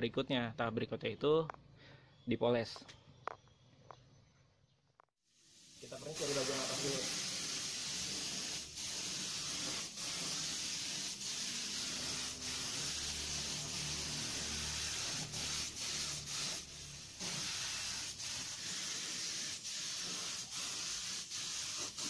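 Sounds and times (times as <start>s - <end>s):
spray gun hissing: 5.3s - 22.0s.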